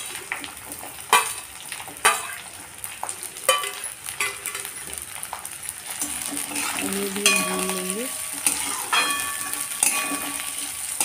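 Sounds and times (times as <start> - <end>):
onions sizzling in hot oil: 0.0 - 11.0
steel spoon clinking on plate: 8.5 - 10.4.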